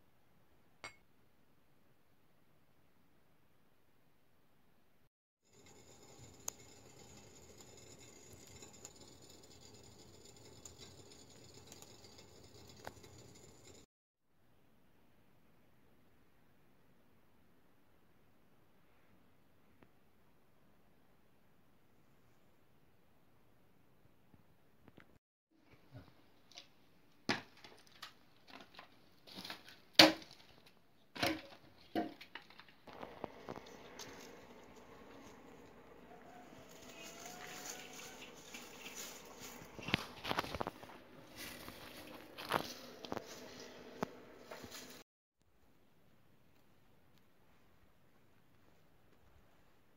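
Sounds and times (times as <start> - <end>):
fire crackling in stove: 5.5 - 13.9, 32.4 - 45.0.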